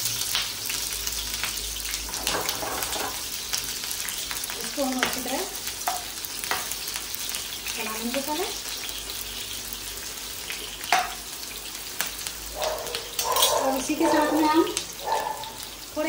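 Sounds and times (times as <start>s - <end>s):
onions sizzling in hot oil: 0.0s - 16.0s
spatula scraping a pan: 2.1s - 3.3s.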